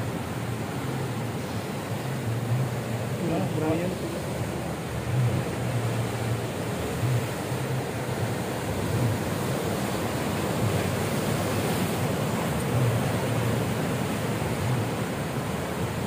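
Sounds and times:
ocean surf breaking: 0.0 - 16.0
wind rumbling on microphone: 0.0 - 16.0.

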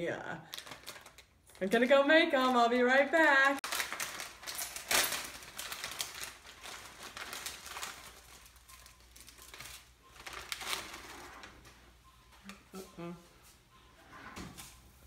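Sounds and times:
plastic packet crinkling: 0.5 - 1.8, 3.6 - 11.4
packet tearing: 3.6 - 11.3.

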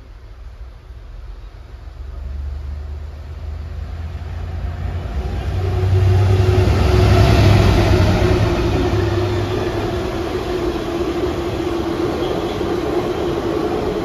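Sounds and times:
diesel locomotive passing: 0.0 - 14.0
wagons rolling past: 4.6 - 14.0.

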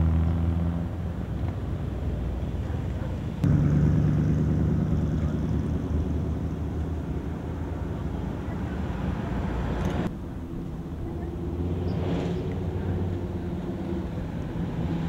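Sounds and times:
car engines driving past: 0.0 - 15.0.

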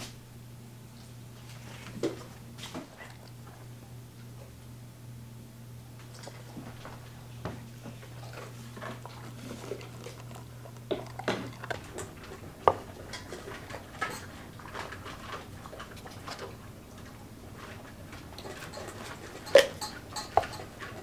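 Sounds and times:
low steady hum: 0.0 - 21.0
dog crunching dry kibble: 7.8 - 21.0.

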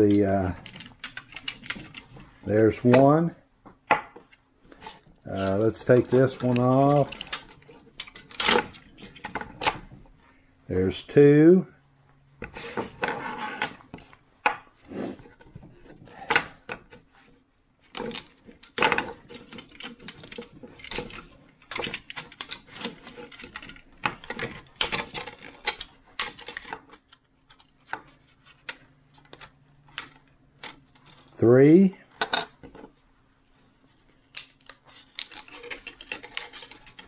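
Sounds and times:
plastic parts clicking and clattering: 0.0 - 3.2, 3.8 - 10.1, 17.8 - 31.4, 34.3 - 37.0.

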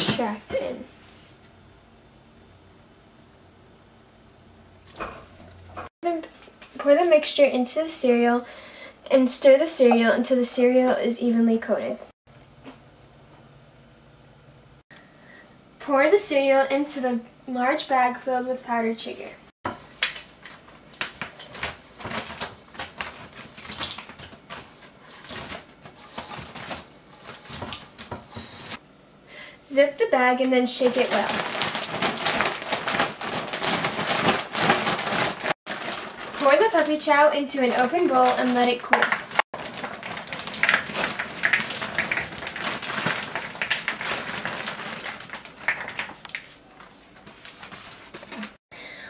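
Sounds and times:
plastic bag rustling: 20.2 - 28.8, 30.8 - 48.6
cereal pieces clattering in a bowl: 38.2 - 46.4.

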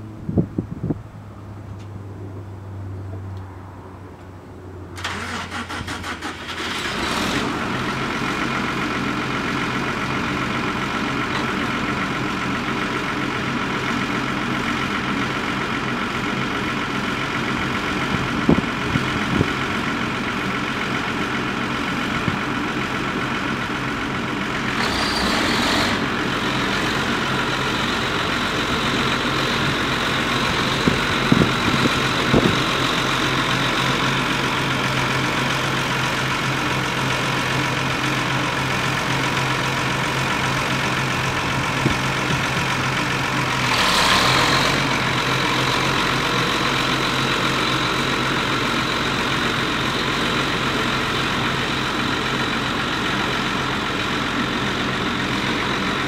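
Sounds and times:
tractor diesel engine idling: 4.0 - 56.0.

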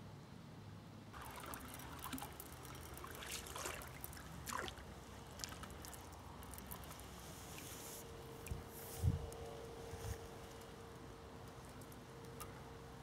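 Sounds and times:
fishing reel ticking and rustling: 1.2 - 4.5, 5.1 - 8.5
swishy splashes: 1.2 - 5.6.

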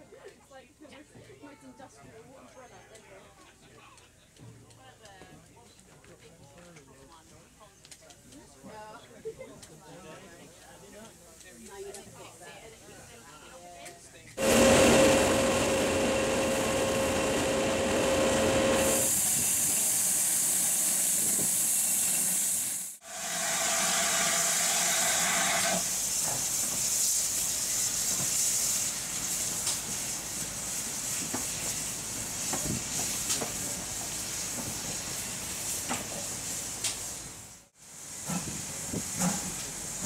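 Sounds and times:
steam hissing from locomotive: 14.4 - 40.0.

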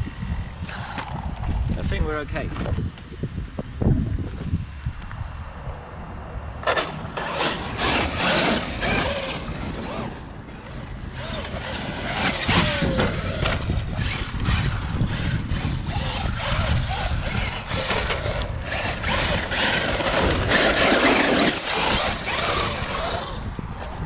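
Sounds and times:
wind rumbling on microphone: 0.0 - 24.0
electric motor whining: 6.6 - 24.0.

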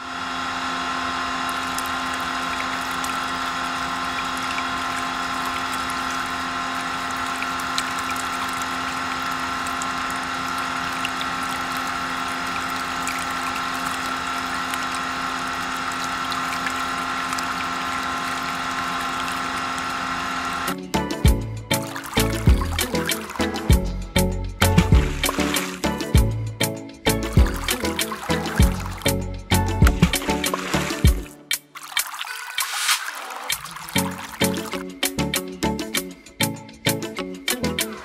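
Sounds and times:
small electric motor humming: 0.0 - 20.8, 21.7 - 26.3, 27.2 - 31.4.

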